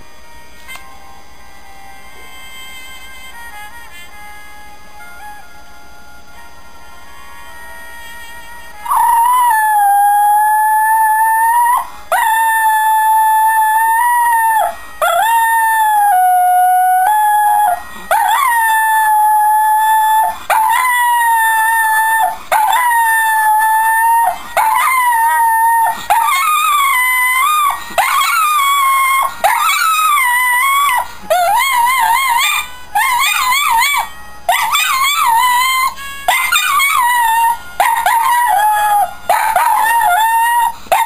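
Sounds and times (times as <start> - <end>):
dog howling: 8.8 - 41.0.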